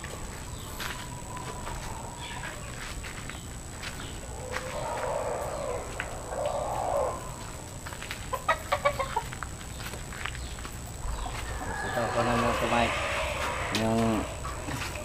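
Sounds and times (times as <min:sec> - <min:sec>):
roosters clucking: 0:00.0 - 0:15.0
rough raspy sound: 0:10.8 - 0:15.0.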